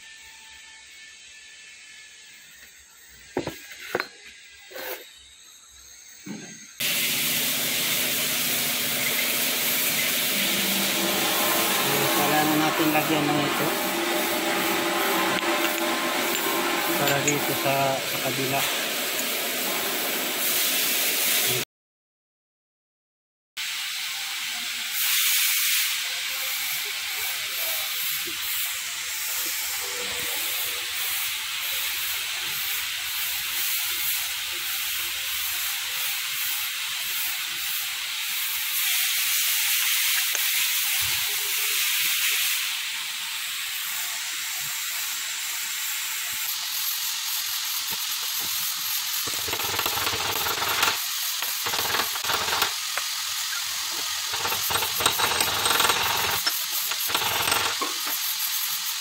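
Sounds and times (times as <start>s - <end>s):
steady hiss: 4.7s - 15.0s, 23.8s - 59.0s.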